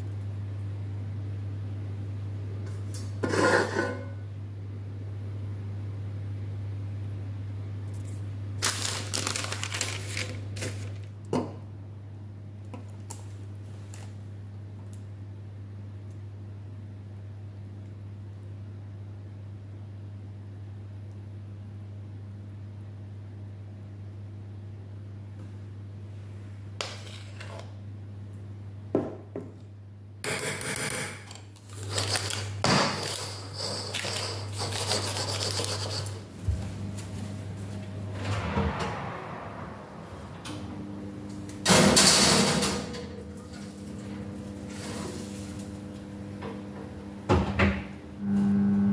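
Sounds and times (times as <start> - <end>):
steady low hum: 0.0 - 48.9
baking parchment crinkling: 8.6 - 11.2, 31.5 - 36.2
pan rubbed on countertop: 33.2 - 36.3.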